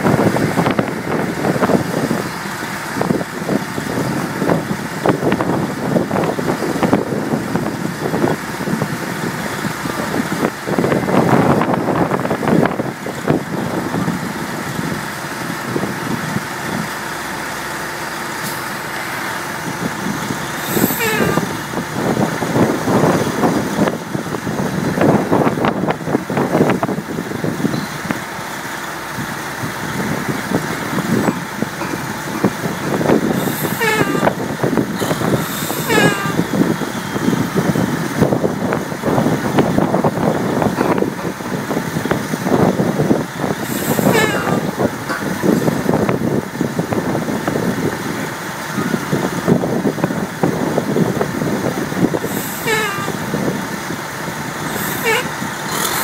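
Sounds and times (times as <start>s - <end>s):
heavy machinery running: 0.0s - 56.0s
short high-pitched squeals: 20.3s - 21.8s, 33.3s - 37.6s, 43.6s - 45.2s, 52.2s - 53.6s, 54.6s - 56.0s
machinery clanks and knocks: 30.3s - 36.5s, 43.5s - 46.2s.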